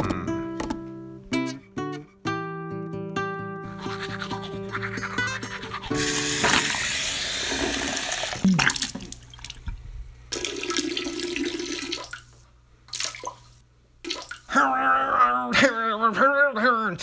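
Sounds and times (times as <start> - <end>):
water running into sink: 6.0 - 12.3.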